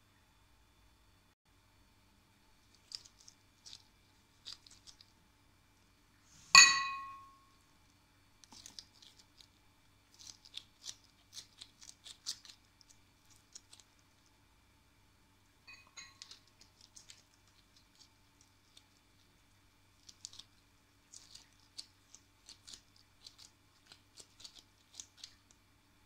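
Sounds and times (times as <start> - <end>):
glass plate ringing clink: 6.6 - 7.4, 15.7 - 16.2.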